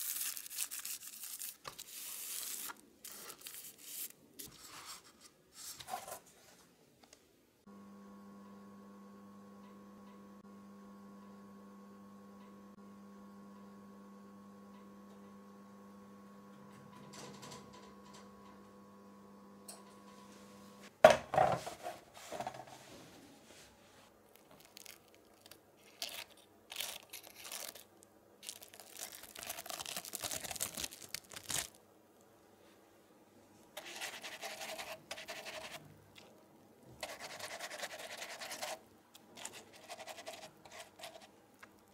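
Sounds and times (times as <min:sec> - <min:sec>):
paper crinkling and rubbing: 0:00.0 - 0:06.6, 0:21.7 - 0:31.8, 0:33.8 - 0:35.8, 0:39.4 - 0:41.3
oven humming: 0:07.7 - 0:20.9.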